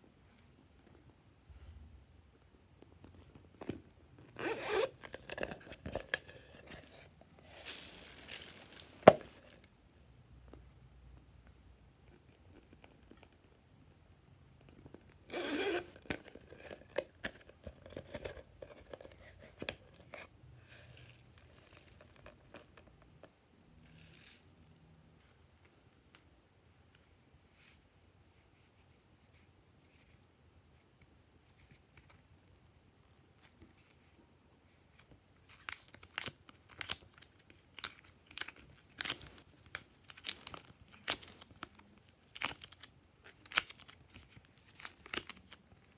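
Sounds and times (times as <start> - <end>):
plastic cases rustling and scraping: 3.1 - 9.7, 15.3 - 22.8.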